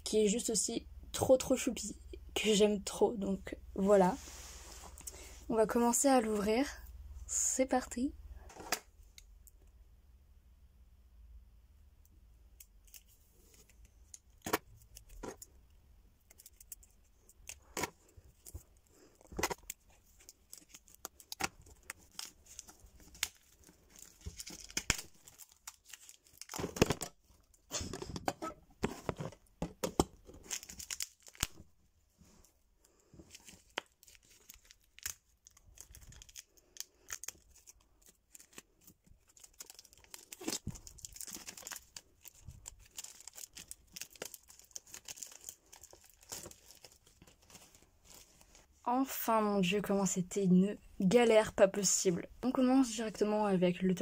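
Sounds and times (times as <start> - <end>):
plastic film crinkling: 16.2 - 28.0, 30.2 - 31.7, 33.3 - 48.6.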